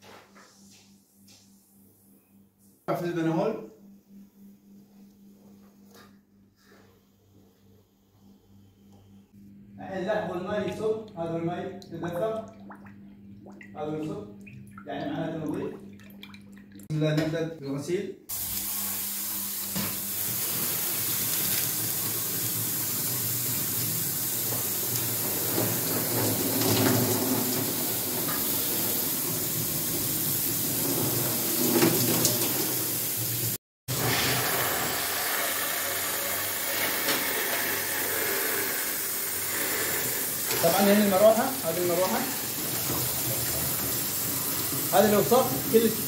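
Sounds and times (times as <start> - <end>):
water splashing: 12.0 - 16.9
water spraying from hose nozzle: 18.3 - 46.0.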